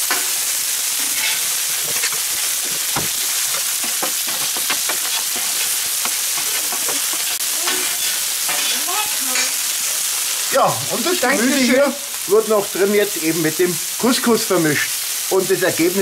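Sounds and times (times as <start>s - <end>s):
food sizzling on a griddle: 0.0s - 16.0s
metal spatula scraping: 1.0s - 10.0s.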